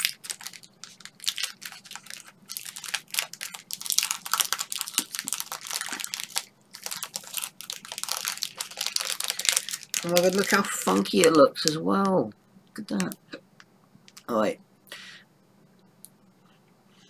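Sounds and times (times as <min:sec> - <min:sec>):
plastic wrapper crackling: 0:00.0 - 0:12.3, 0:14.1 - 0:14.4.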